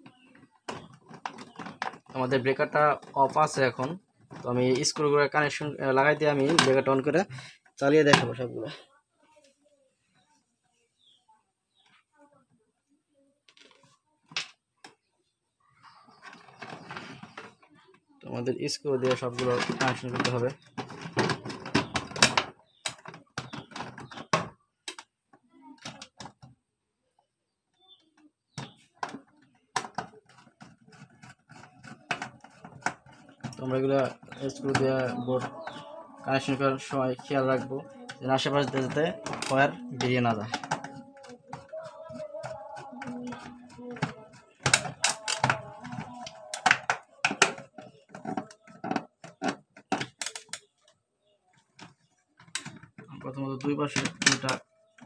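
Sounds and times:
plastic clicks and knocks: 0:00.0 - 0:05.1, 0:06.2 - 0:08.5, 0:19.0 - 0:25.1, 0:25.8 - 0:26.5, 0:28.5 - 0:50.9, 0:51.6 - 0:55.0.

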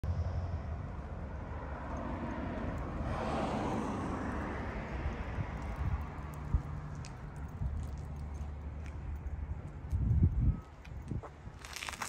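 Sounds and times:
low traffic rumble: 0:00.0 - 0:12.0
vehicle passing: 0:00.1 - 0:09.2.

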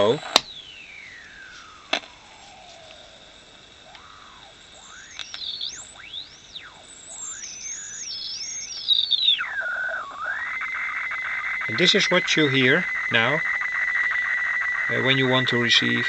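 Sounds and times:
radio hiss: 0:00.0 - 0:16.0
whistling tone gliding in pitch: 0:00.0 - 0:16.0
click: 0:05.1 - 0:05.5, 0:08.7 - 0:09.0.

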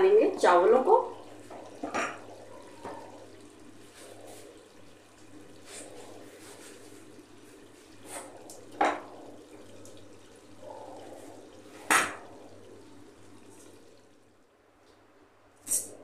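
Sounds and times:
metal clanking against pot: 0:01.5 - 0:03.1.

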